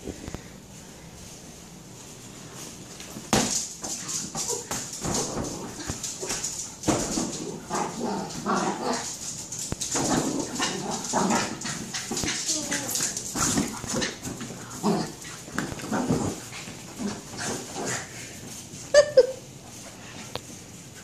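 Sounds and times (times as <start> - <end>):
dog claws clicking on vinyl floor: 2.9 - 16.4.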